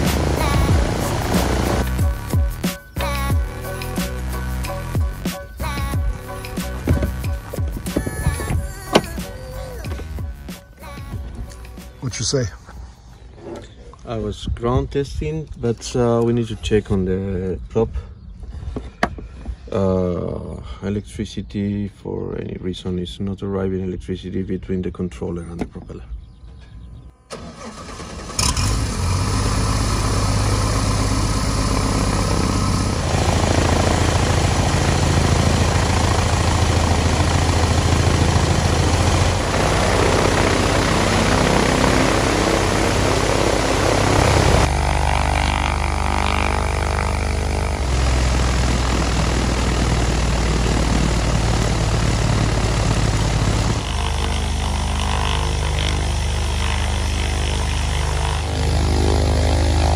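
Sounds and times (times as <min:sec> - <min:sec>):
light aircraft engine and propeller: 0:00.0 - 0:13.9, 0:27.3 - 0:59.9.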